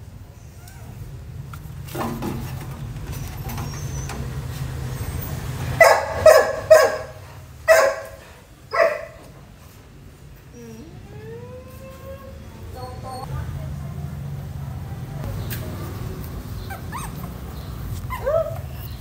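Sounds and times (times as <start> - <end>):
dog barking: 5.8 - 9.3.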